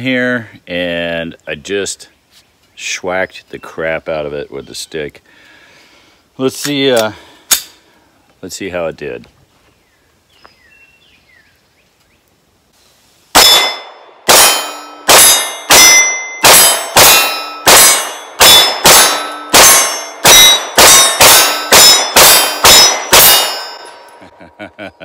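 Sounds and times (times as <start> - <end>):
pistol shots: 13.4 - 24.0
steel plate target ringing: 13.4 - 24.4.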